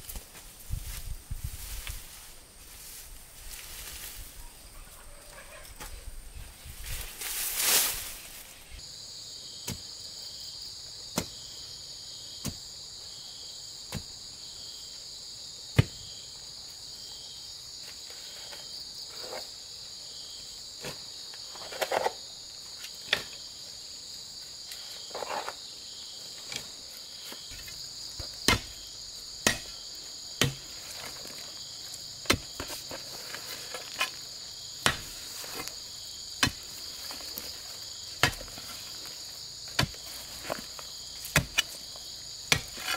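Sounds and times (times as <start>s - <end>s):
insects chirring: 0.0s - 42.9s
digging bar striking soil: 11.1s - 11.4s, 13.9s - 14.1s, 27.3s - 31.6s, 32.2s - 34.2s, 34.8s - 42.9s.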